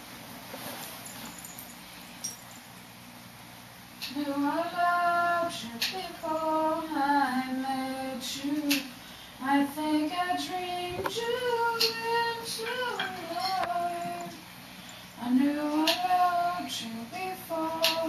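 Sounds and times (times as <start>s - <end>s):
woman singing unaccompanied: 4.0s - 14.5s, 15.2s - 18.0s.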